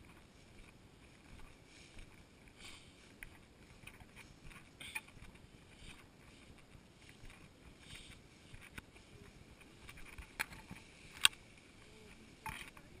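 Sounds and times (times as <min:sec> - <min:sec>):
tall grass swishing and rustling: 0:00.0 - 0:13.0
grass stalks tapping camera: 0:06.6 - 0:11.4.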